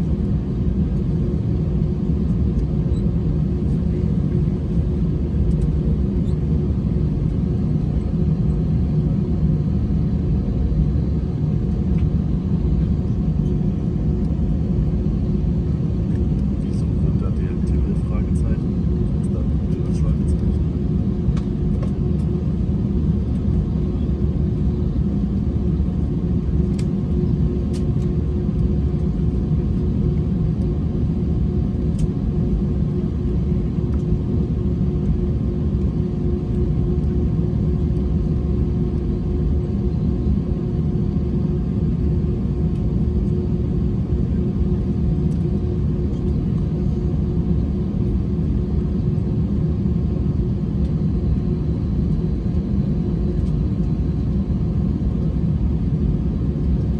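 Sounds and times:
airplane cabin rumble: 0.0 - 56.9
constant hum: 0.0 - 56.9.

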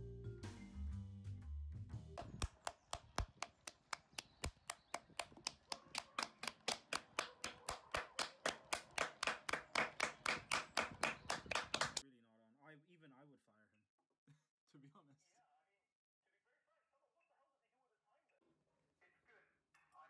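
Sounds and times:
hands clapping fast: 2.2 - 12.0.

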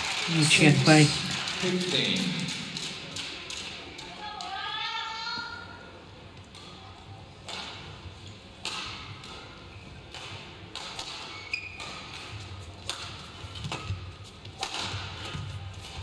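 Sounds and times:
rackets hitting shuttlecock: 7.4 - 7.9, 8.6 - 16.0
shoe squeak on court floor: 11.3 - 12.1.

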